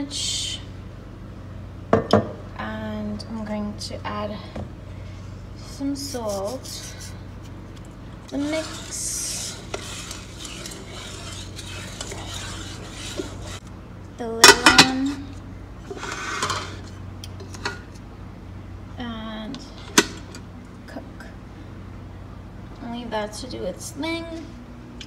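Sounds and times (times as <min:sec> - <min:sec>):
spoon stirring rice in water: 0:08.3 - 0:13.7.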